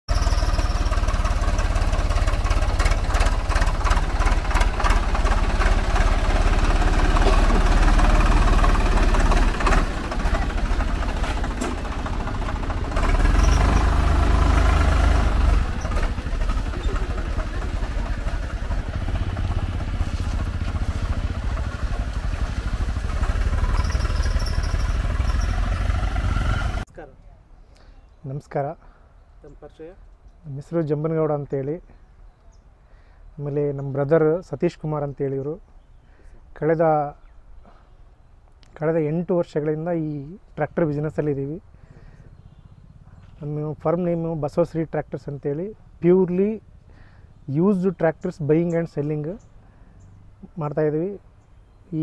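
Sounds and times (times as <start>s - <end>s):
diesel tractor engine rumbling: 0.1s - 27.1s.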